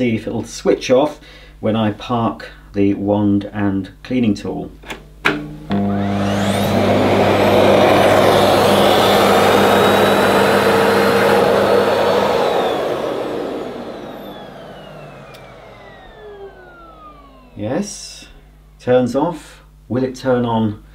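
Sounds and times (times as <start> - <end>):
vacuum cleaner running: 5.3 - 18.9
motor winding down whine: 5.4 - 18.8.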